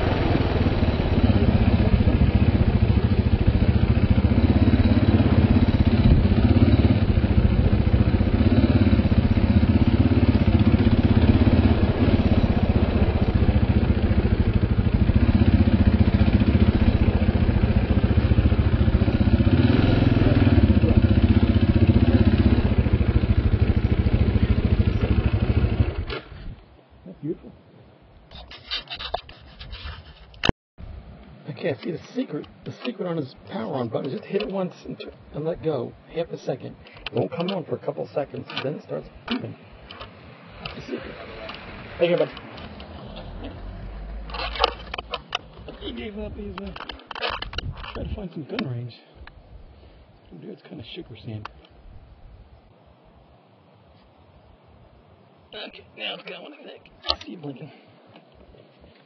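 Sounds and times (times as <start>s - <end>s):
motorcycle engine running: 0.0s - 26.2s.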